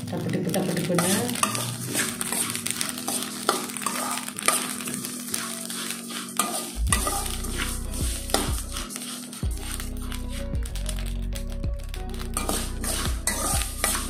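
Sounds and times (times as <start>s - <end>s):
rice grains crackling and popping: 0.0s - 14.0s
metal spoon scraping pan: 0.9s - 10.5s, 12.4s - 14.0s.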